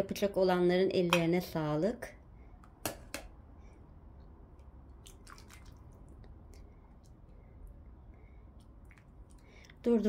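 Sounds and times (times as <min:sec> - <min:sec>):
low steady hum: 0:00.0 - 0:10.0
soft liquid sounds: 0:04.4 - 0:10.0.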